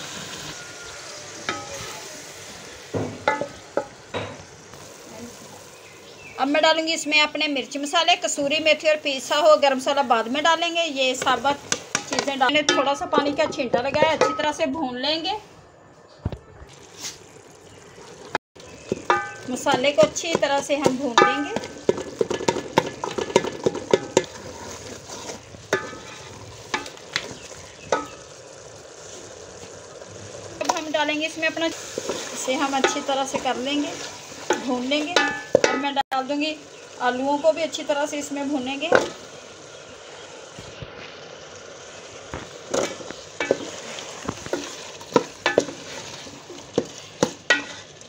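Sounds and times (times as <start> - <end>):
frying sizzle: 0.0 - 15.5, 16.1 - 48.0
spoon knocking against pot: 3.0 - 4.4, 18.9 - 24.4, 34.5 - 36.0
spoon scraping pot: 18.8 - 28.2, 42.7 - 47.9
spoon scraping a metal pot: 43.4 - 47.9.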